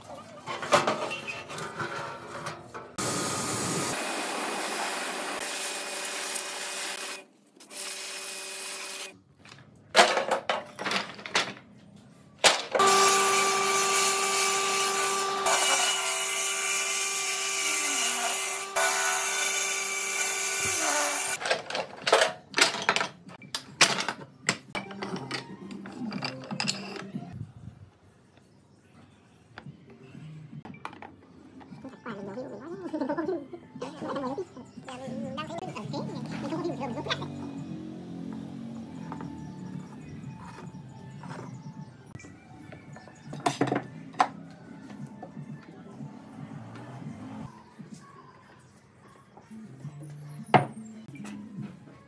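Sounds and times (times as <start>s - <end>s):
power tool cutting wood: 3.0s - 9.1s, 12.8s - 21.4s.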